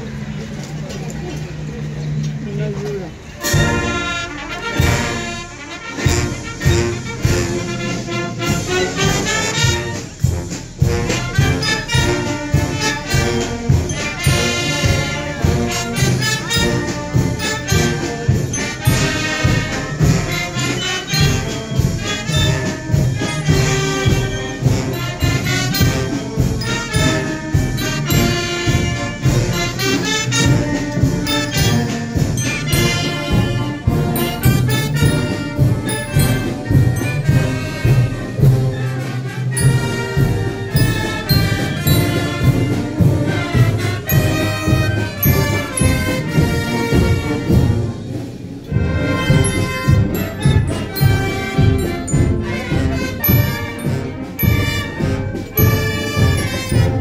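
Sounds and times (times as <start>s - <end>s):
brass band playing a march: 3.2s - 57.0s
steady drum beat: 3.4s - 57.0s.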